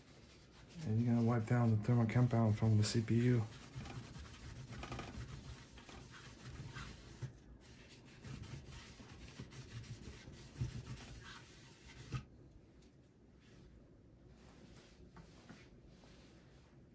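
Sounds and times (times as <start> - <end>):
paper napkin scrubbing metal: 0.0 - 12.3.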